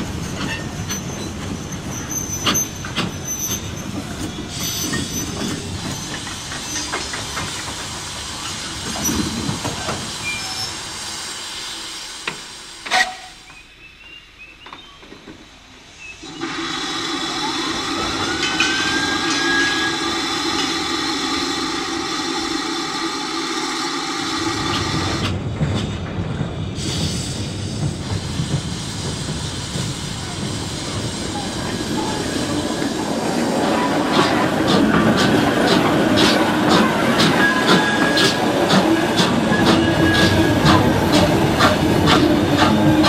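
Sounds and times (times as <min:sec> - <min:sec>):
steam hissing: 0:00.0 - 0:14.6, 0:15.4 - 0:26.0, 0:26.6 - 0:43.0
steam train noise: 0:00.0 - 0:43.0
steam whistle tones: 0:12.8 - 0:14.2, 0:17.4 - 0:20.8, 0:39.0 - 0:41.0.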